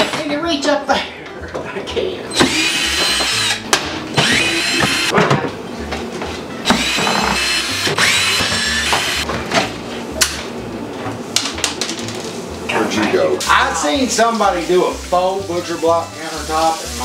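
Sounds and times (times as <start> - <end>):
cordless drill whining: 2.3 - 5.1, 6.7 - 9.2.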